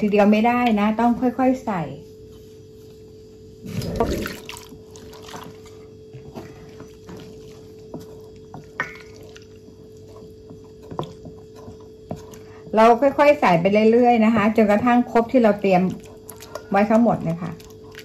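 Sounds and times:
steady low hum: 0.0s - 18.0s
spatula stirring wet paste: 4.1s - 18.0s.

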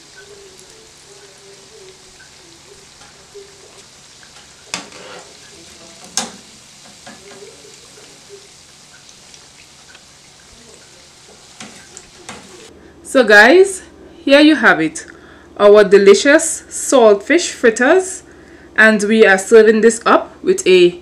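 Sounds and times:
fritters deep-frying in oil: 0.0s - 12.7s
skimmer knocking on pan: 4.3s - 7.6s.

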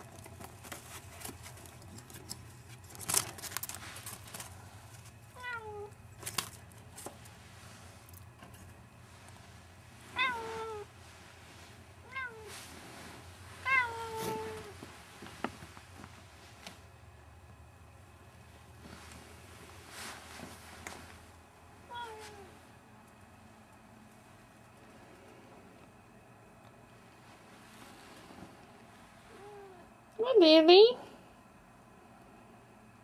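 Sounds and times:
clicks and rustles: 0.0s - 7.4s
cat meowing: 5.4s - 5.9s, 10.1s - 10.9s, 12.0s - 12.5s, 13.6s - 14.7s, 21.9s - 22.5s.

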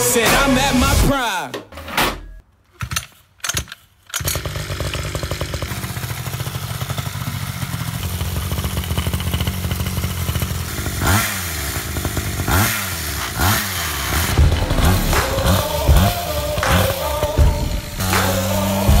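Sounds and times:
small two-stroke engine running: 4.2s - 19.0s.

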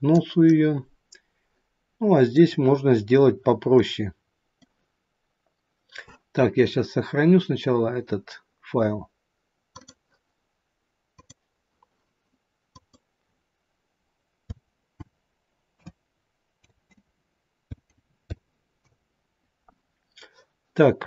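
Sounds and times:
computer mouse clicks: 9.7s - 10.0s, 11.2s - 11.4s, 12.7s - 13.1s.

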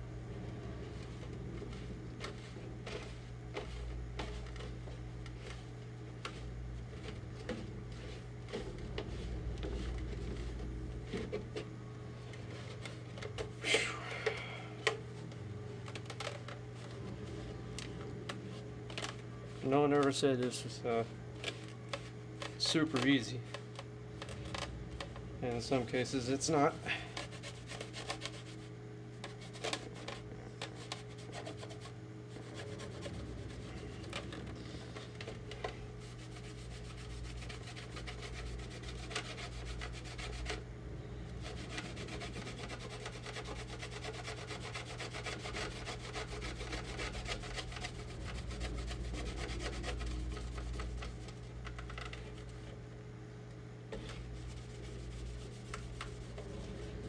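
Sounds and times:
steady low hum: 0.0s - 57.0s
cloth rag rubbing on plastic: 0.7s - 11.6s, 24.4s - 40.6s, 41.4s - 52.6s, 53.9s - 57.0s.

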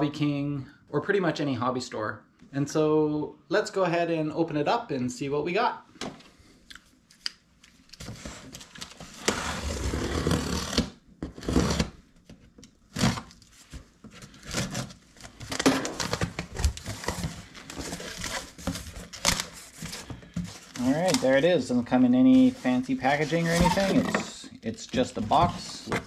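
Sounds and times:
packing tape being cut: 9.2s - 11.9s, 12.9s - 13.4s
cardboard scraping and rustling: 13.0s - 26.0s.

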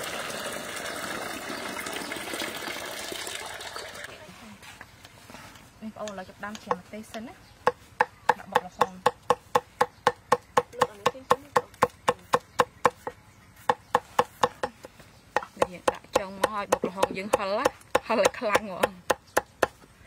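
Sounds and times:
cleaver chopping on wooden board: 6.5s - 19.8s.

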